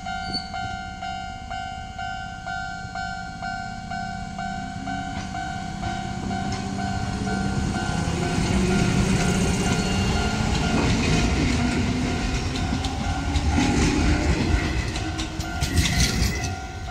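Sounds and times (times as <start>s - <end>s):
electric train passing: 0.0s - 16.9s
wheels clacking over rail joints: 4.8s - 16.9s.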